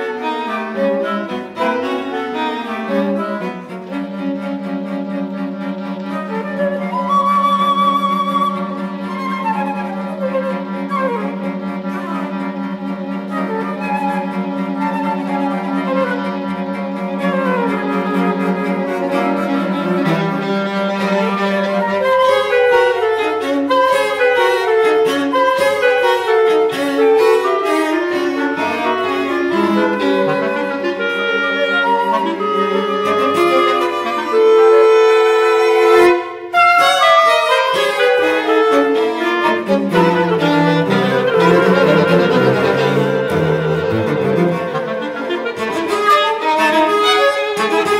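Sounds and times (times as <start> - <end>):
chamber quartet playing: 0.0 - 47.9.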